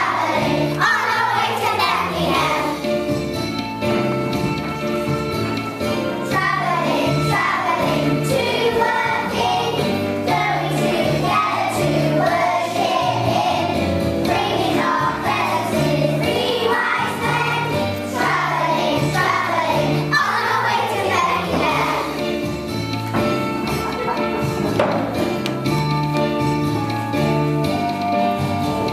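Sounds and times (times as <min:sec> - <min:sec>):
children singing: 0:00.0 - 0:02.9, 0:06.2 - 0:22.2
backing music with bass line: 0:00.0 - 0:28.9.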